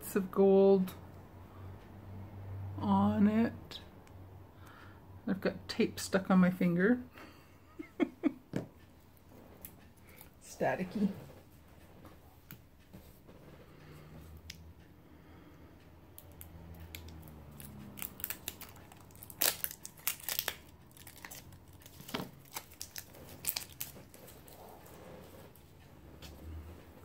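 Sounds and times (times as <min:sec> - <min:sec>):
tape crinkling: 0:16.2 - 0:25.6.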